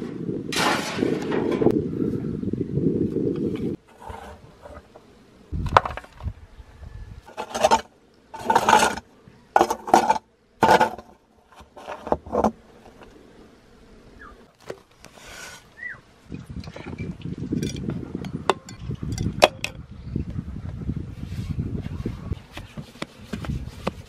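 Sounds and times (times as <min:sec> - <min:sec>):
short scrapes and knocks: 0:03.8 - 0:05.1, 0:07.3 - 0:13.1.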